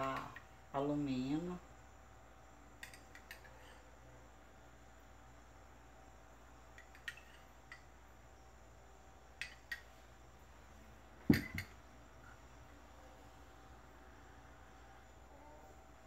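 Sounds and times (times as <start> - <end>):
plastic and glass clicks and clinks: 6.8 - 7.9, 11.3 - 11.8
double thud on tabletop: 11.3 - 11.7.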